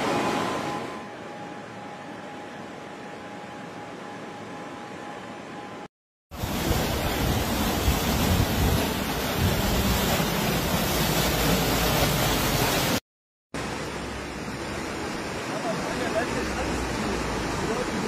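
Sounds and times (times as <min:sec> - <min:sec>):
wind on microphone: 0:06.4 - 0:10.3
floodwater rushing: 0:06.4 - 0:13.0, 0:13.6 - 0:18.0.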